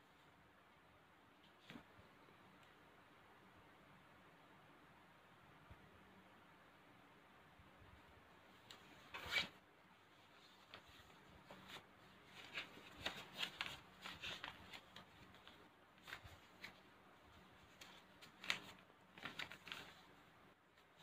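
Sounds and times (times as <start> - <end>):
paper rustling and crinkling: 10.2 - 20.2.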